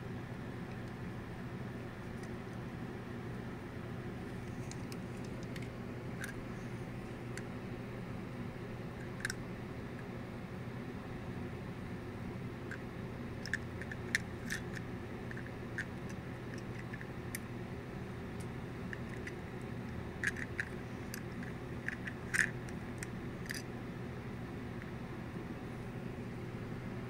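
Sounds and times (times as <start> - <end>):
steady low hum: 0.0 - 27.0
metal toy clicks and taps: 20.2 - 23.6.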